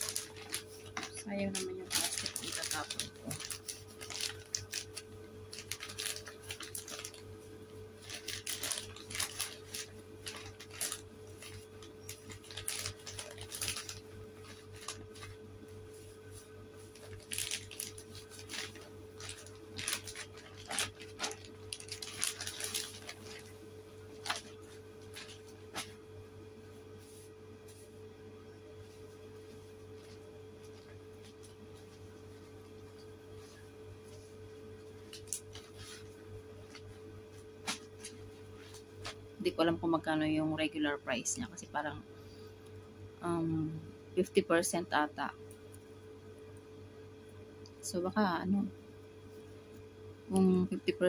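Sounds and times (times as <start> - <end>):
plastic bag crinkling: 0.0 - 15.9, 16.8 - 26.1, 29.5 - 39.4
faint hum: 0.0 - 51.0.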